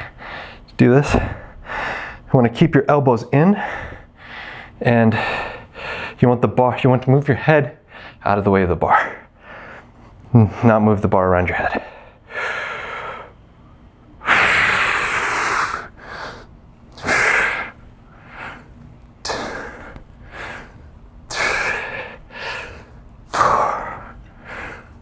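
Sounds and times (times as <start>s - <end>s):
man exhaling forcefully: 14.2s - 17.8s, 19.2s - 20.7s, 21.3s - 24.9s
faint breaths: 14.2s - 25.0s.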